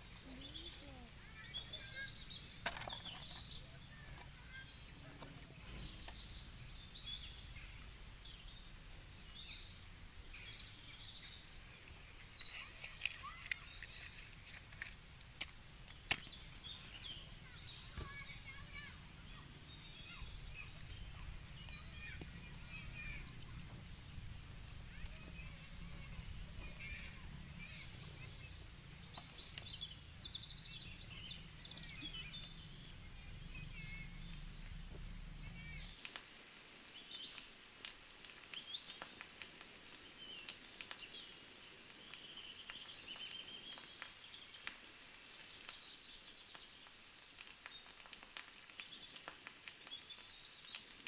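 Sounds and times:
birds chirping: 0.0 - 14.8, 15.8 - 51.0.

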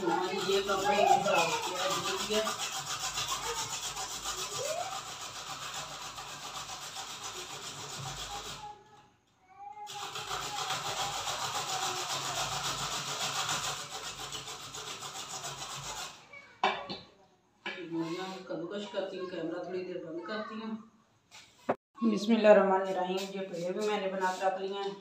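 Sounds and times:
grater rasping: 0.0 - 8.8, 9.9 - 16.2.

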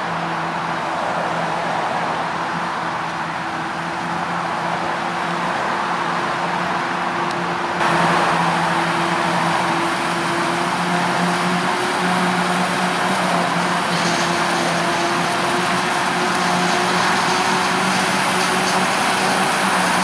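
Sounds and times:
tractor engines working: 0.0 - 20.0
forage harvester engine: 2.0 - 20.0
hiss of chopped crop blowing: 8.0 - 20.0.

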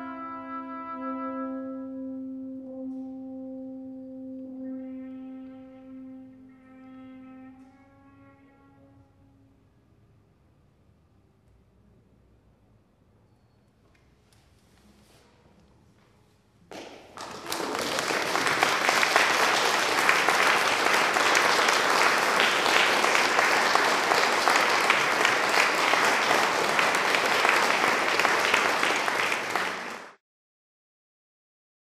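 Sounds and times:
audience applauding: 16.7 - 30.2.

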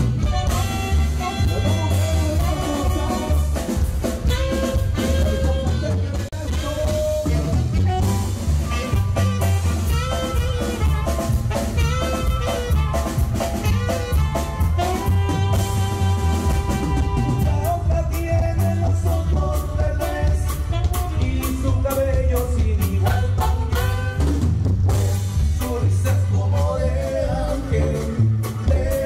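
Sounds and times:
saxophone melody: 0.0 - 18.2, 19.3 - 22.0, 23.0 - 25.4
live band playing dance music: 0.0 - 29.0.

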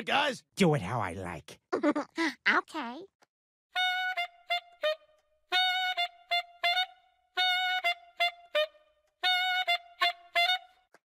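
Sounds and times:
wind instrument playing: 3.7 - 11.0.

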